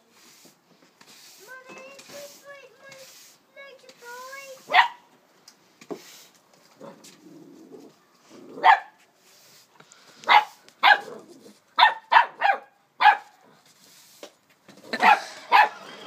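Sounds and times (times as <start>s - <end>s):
puppy barking: 4.7s - 5.0s, 8.6s - 9.0s, 10.3s - 11.2s, 11.8s - 13.3s, 15.0s - 15.9s.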